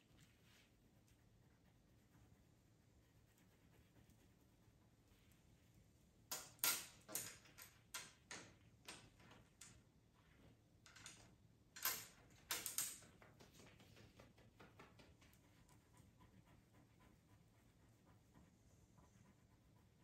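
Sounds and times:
pencils clicking and clattering: 6.3s - 9.9s, 10.8s - 15.0s.

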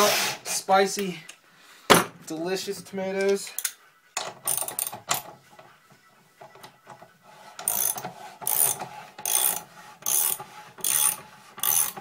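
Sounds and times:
ratchet wrench clicking: 4.5s - 5.2s, 7.6s - 12.0s.

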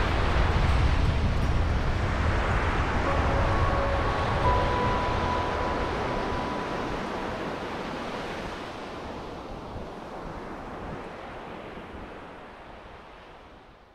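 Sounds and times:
small waves breaking on beach: 0.0s - 13.8s.

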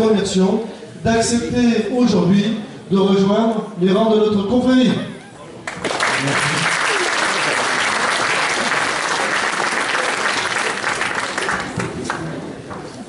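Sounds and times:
audience applause: 5.7s - 12.4s.

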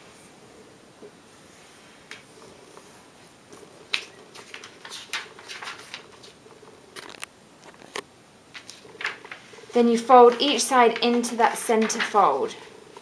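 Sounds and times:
paper rustling and crackling: 3.9s - 12.5s.

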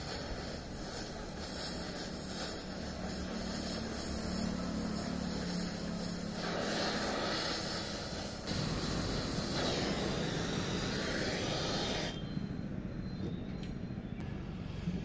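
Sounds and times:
welding torch flame hissing: 0.0s - 12.4s.

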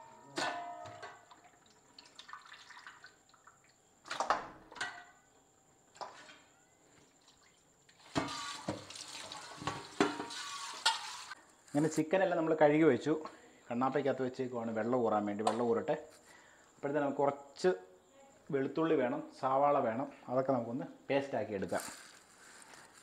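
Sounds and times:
water splashes: 1.3s - 3.5s
water running in sink: 8.0s - 11.4s.

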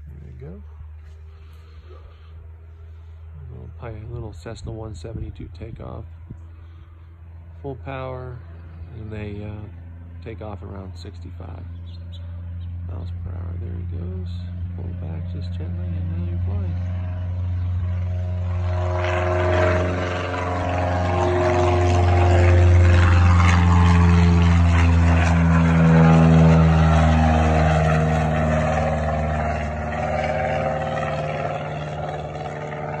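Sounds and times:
constant low hum: 0.0s - 33.0s
propeller plane engine drone: 0.0s - 33.0s.

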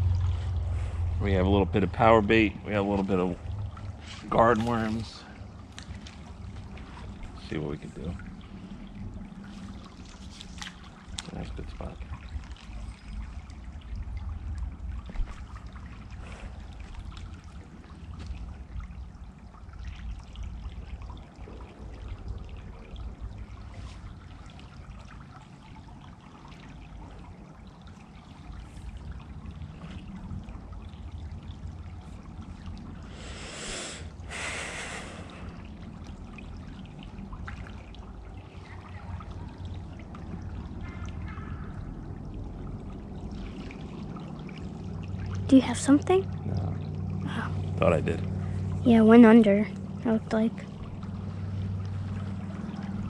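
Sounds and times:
low rumble: 0.0s - 53.0s
stream trickling: 0.0s - 53.0s
short hissing sounds: 33.1s - 35.3s.

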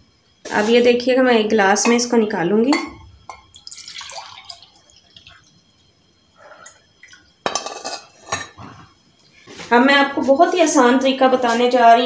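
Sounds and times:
liquid pouring into glass: 3.5s - 5.5s.

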